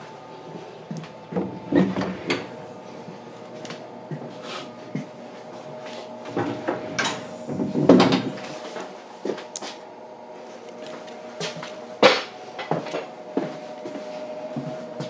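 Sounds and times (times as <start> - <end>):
steady hum: 0.0 - 15.0
footsteps: 0.5 - 9.8, 10.4 - 15.0
sliding train door clattering: 1.3 - 2.9, 6.3 - 8.7.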